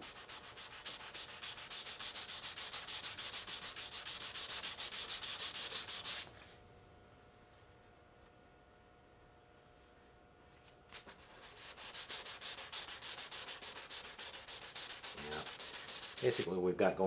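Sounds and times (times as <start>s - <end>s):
sandpaper rubbing on plastic: 0.0s - 6.3s, 10.9s - 16.5s.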